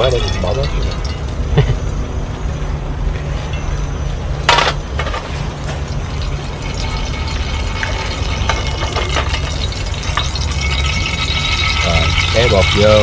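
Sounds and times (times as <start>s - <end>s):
steady low hum: 0.0s - 13.0s
oil pouring from frying pan: 5.6s - 13.0s.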